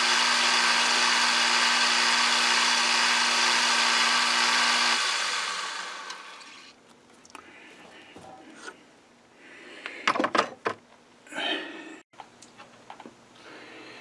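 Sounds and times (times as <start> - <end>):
hard objects clicking and knocking: 10.0 - 10.9.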